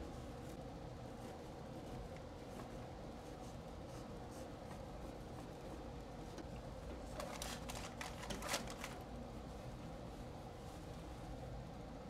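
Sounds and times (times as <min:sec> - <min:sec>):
faint steady hum: 0:00.0 - 0:12.0
paper strip crinkling: 0:07.1 - 0:09.0.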